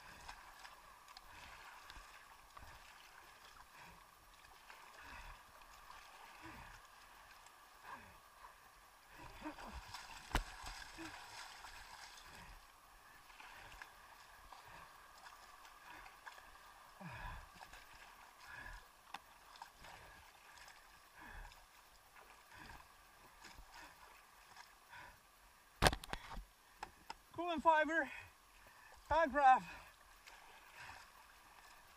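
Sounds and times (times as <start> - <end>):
water sloshing and gurgling: 0.0 - 27.4, 28.1 - 31.9.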